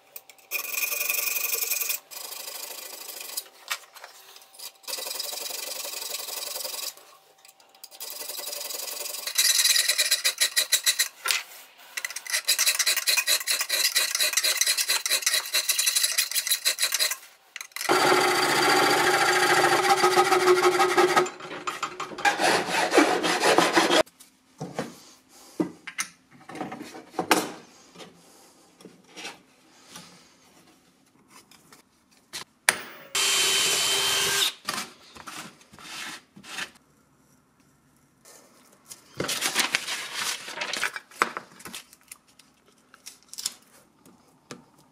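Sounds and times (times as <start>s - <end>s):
file rasping on steel: 12.1s - 17.2s, 22.3s - 24.0s.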